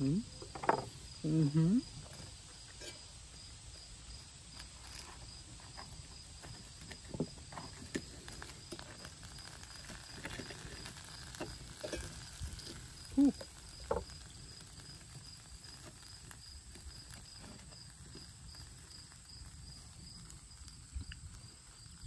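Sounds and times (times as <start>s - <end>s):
pulsing insect chirp: 0.0s - 22.0s
cutlery scraping in a pan: 2.7s - 3.2s, 11.4s - 12.8s
short voiced sound: 13.2s - 13.4s.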